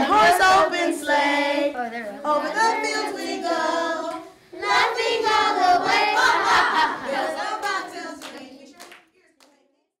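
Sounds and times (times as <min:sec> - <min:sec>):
children clapping: 0:07.5 - 0:09.6.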